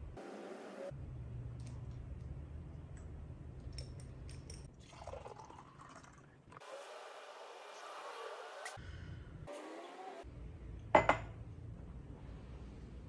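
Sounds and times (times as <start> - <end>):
water trickling into glass jar: 4.6 - 6.4.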